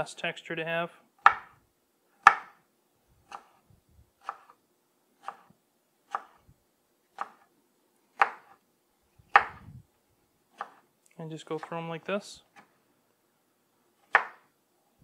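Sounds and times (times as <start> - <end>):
knife chopping on wooden board: 1.2 - 1.5, 2.2 - 2.6, 3.3 - 3.6, 4.2 - 4.6, 5.2 - 5.5, 6.1 - 6.4, 7.2 - 7.4, 8.2 - 8.6, 9.3 - 9.7, 10.6 - 10.8, 14.1 - 14.5.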